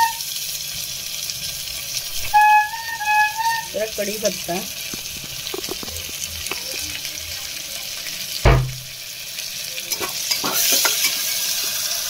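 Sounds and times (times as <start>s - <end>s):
food sizzling in oil: 0.0s - 12.0s
spoon stirring and scraping: 4.9s - 7.1s
heavy thump: 8.4s - 8.9s.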